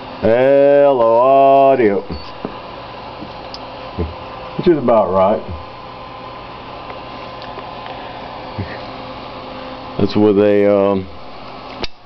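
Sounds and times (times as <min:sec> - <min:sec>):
cooling fan whirring: 0:00.0 - 0:12.0
faint electrical hum: 0:00.0 - 0:12.0.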